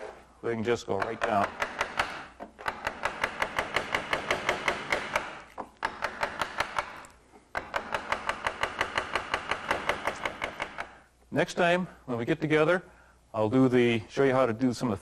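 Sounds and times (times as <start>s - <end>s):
wooden mallet tapping a gouge: 0.8s - 11.0s.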